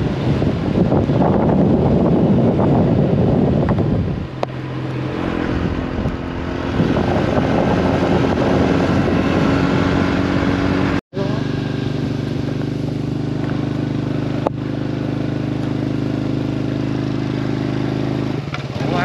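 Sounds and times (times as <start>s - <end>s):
wind buffeting microphone: 0.0s - 11.0s
motorbike engine running: 0.0s - 19.0s.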